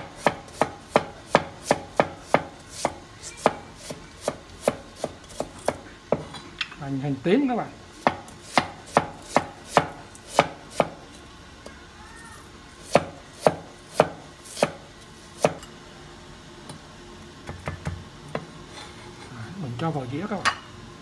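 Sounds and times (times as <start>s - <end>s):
cleaver chopping on wooden board: 0.2s - 6.2s, 8.0s - 11.0s, 12.9s - 14.8s.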